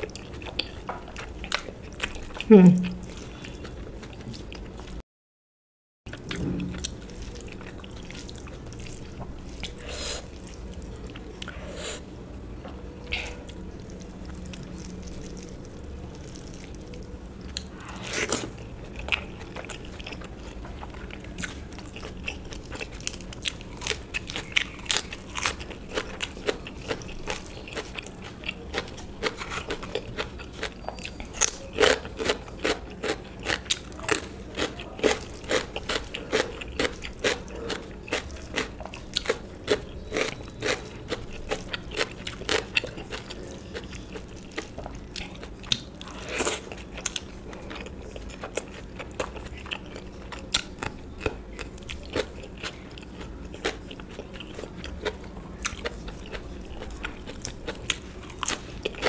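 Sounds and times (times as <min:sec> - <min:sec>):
chewing crunches: 0:13.0 - 0:59.0.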